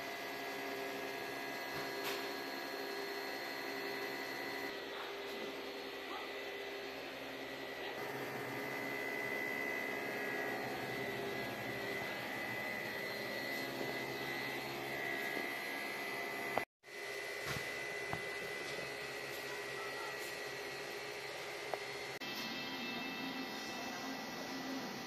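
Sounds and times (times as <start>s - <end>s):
refrigeration machinery humming: 0.0s - 25.0s
thin high whine: 17.5s - 25.0s.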